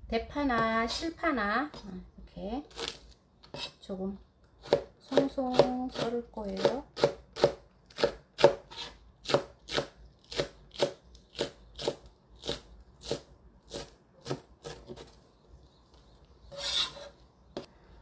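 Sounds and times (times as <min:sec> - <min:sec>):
knife chopping on cutting board: 0:04.6 - 0:15.1
knife scraping board: 0:16.5 - 0:17.2.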